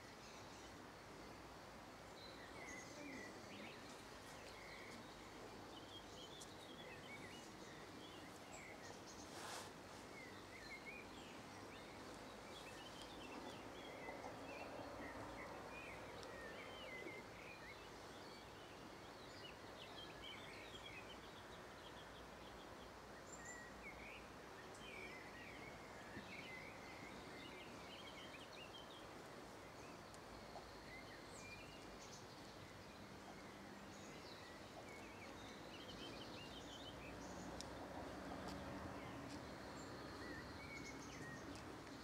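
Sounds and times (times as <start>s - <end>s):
background hiss: 0.0s - 42.0s.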